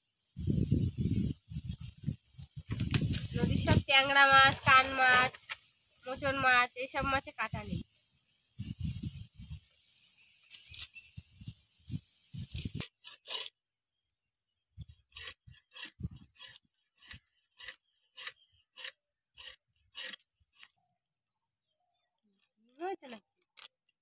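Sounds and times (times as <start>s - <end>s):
knife scraping fish scales: 12.4s - 13.6s, 15.0s - 20.8s.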